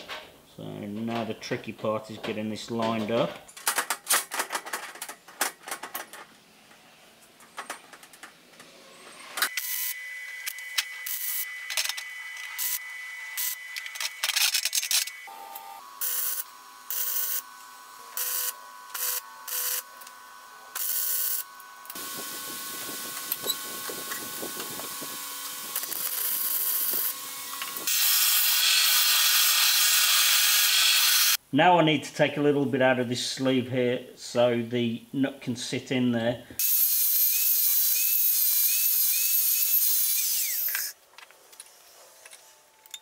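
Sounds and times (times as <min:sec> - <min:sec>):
arc welding crackling: 0:09.4 - 0:15.2, 0:16.0 - 0:31.4
belt sander grinding steel: 0:16.0 - 0:31.4, 0:36.6 - 0:40.9.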